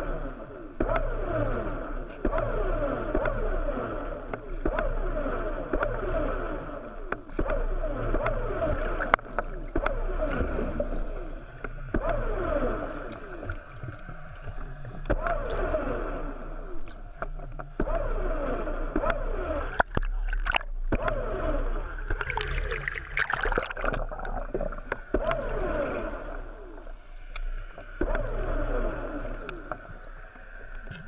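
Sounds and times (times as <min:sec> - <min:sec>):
steady low hum: 0:00.0 - 0:31.0
water sloshing and gurgling: 0:00.0 - 0:31.0.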